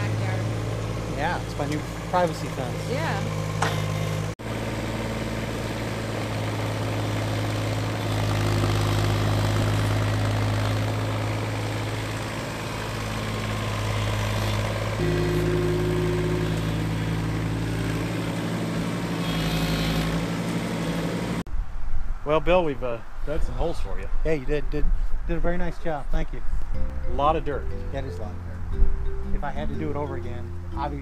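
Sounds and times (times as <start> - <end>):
excavator diesel engine digging: 0.0 - 21.4.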